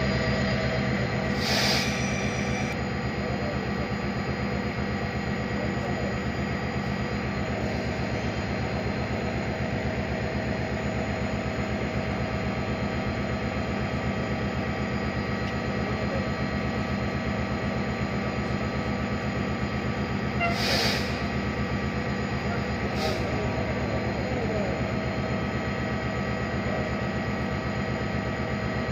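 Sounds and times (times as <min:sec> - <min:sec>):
train engine idling: 0:00.0 - 0:28.9
hiss of air: 0:01.3 - 0:02.7, 0:20.5 - 0:21.3.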